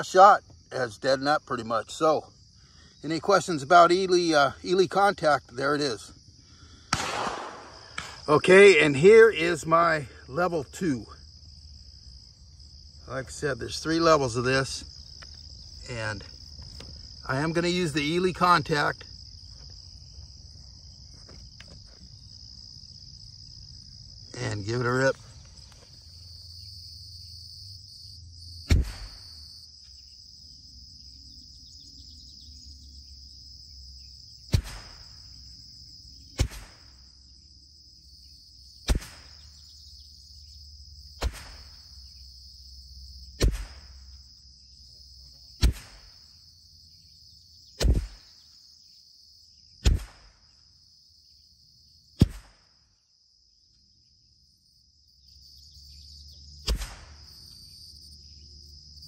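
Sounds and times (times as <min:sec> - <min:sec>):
insects chirring: 0:00.0 - 0:59.0
rifle shots: 0:06.9 - 0:08.2, 0:34.5 - 0:35.1, 0:36.4 - 0:36.9, 0:38.9 - 0:39.3, 0:41.2 - 0:41.7, 0:45.6 - 0:46.1, 0:52.2 - 0:52.6, 0:56.7 - 0:57.2.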